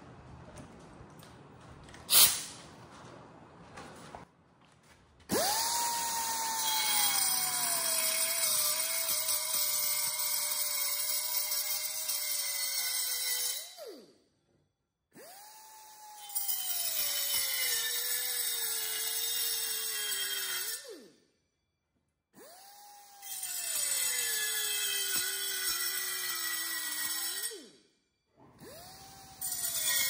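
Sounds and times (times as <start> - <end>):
air saw cutting metal tube: 2.1 - 2.6, 5.3 - 14.1, 15.2 - 21.1, 22.4 - 27.8, 29.1 - 30.0.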